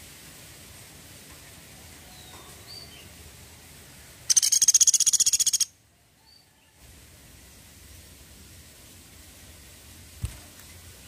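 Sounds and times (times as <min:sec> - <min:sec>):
faint high bird chirps: 0:02.0 - 0:03.1, 0:04.3 - 0:06.8
woodpecker trilling rattle call: 0:04.3 - 0:05.7.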